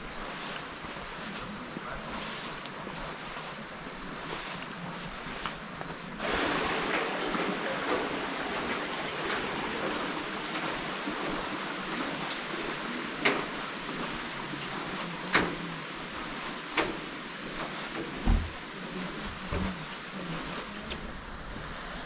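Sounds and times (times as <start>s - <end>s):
high insect drone: 0.0s - 22.0s
rushing noise: 6.1s - 15.0s.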